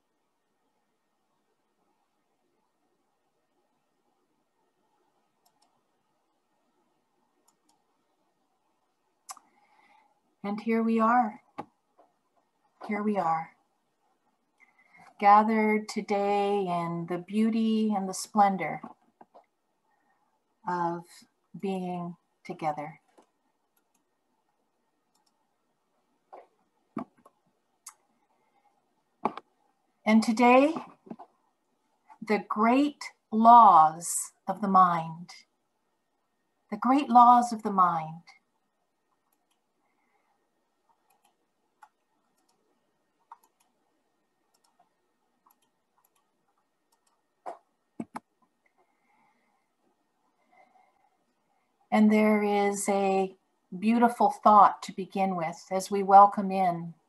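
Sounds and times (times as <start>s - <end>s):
computer mouse clicks: 5.4s - 5.8s, 7.4s - 7.9s, 23.0s - 24.2s, 25.0s - 25.5s, 26.3s - 28.1s, 29.2s - 29.6s, 39.1s - 39.8s, 40.8s - 48.9s.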